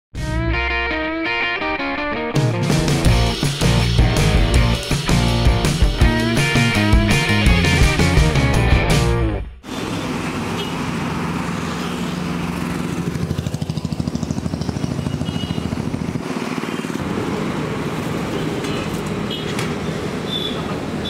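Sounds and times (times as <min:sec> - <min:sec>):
pulsing engine beat: 0:02.6 - 0:08.9, 0:12.4 - 0:16.4
motorcycles and scooters passing: 0:09.7 - 0:21.0.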